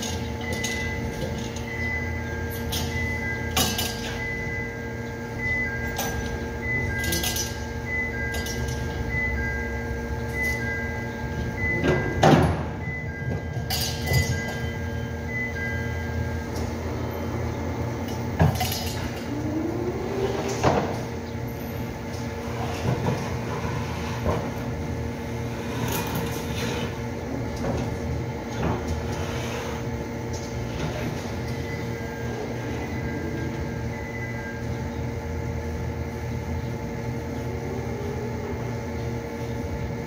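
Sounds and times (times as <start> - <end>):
pallet jack metal clanks: 0.0 - 4.3, 5.9 - 9.1, 11.6 - 14.9
two-tone electronic beeps: 0.0 - 17.6, 30.9 - 35.0
machinery hum: 0.0 - 40.0.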